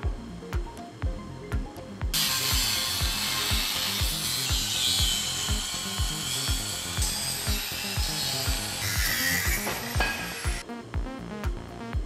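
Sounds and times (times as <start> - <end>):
background music with thumping beat: 0.0 - 12.0
angle grinder grinding steel: 2.2 - 10.6.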